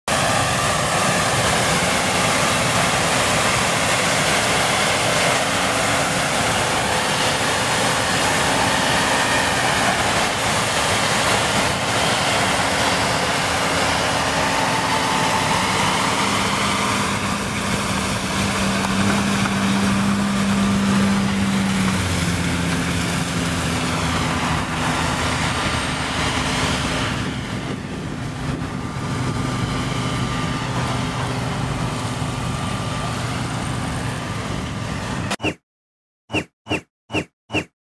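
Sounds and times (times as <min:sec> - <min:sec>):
combine harvester running: 0:00.1 - 0:35.4
tractor engine: 0:00.1 - 0:35.5.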